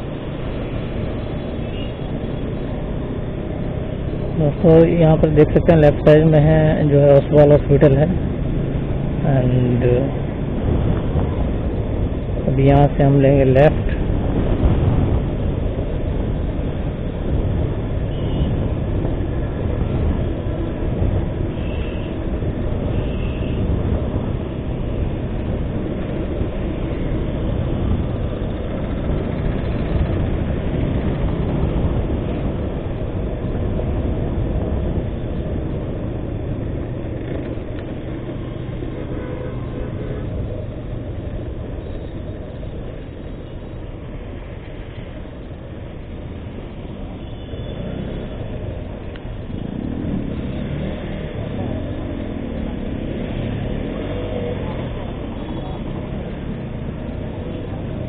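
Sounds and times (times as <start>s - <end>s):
wind buffeting microphone: 0.0s - 43.5s
motorcycle engine: 13.9s - 43.5s.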